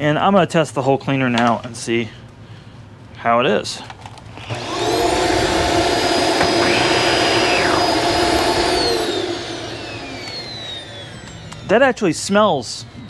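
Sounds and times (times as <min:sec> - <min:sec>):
vacuum cleaner motor whine: 0:04.4 - 0:11.8.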